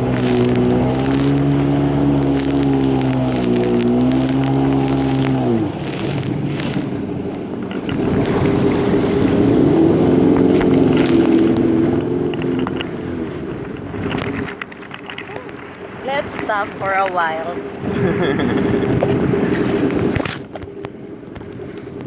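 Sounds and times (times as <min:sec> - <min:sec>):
jet ski engine running: 0:00.0 - 0:22.0
water and wind rushing: 0:00.0 - 0:22.0.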